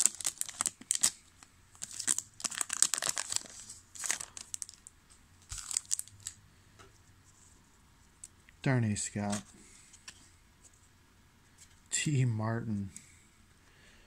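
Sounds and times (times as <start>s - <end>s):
foil wrapper tearing and crinkling: 0.0s - 1.2s, 1.8s - 6.4s.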